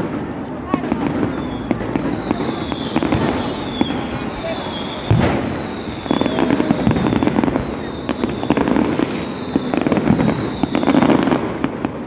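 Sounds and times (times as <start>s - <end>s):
fireworks crackling and popping: 0.0s - 12.0s
fireworks loud bangs: 0.0s - 12.0s
descending firework whistles: 0.9s - 12.0s.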